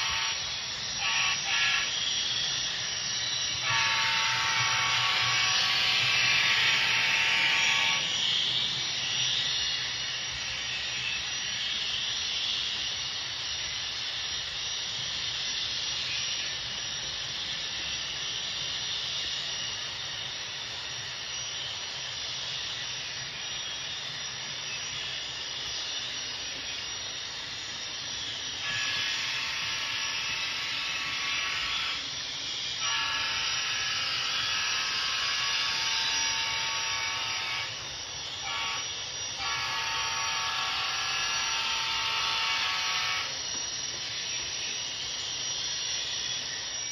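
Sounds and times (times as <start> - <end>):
locomotive hissing rush with whine: 0.0 - 46.9
model train running on track: 0.0 - 46.9.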